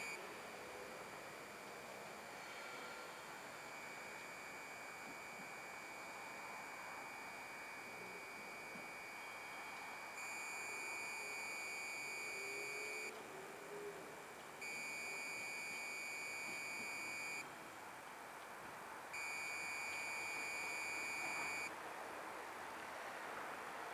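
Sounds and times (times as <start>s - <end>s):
long high-pitched electronic beeps: 3.6s - 13.1s, 14.6s - 17.4s, 19.2s - 21.7s.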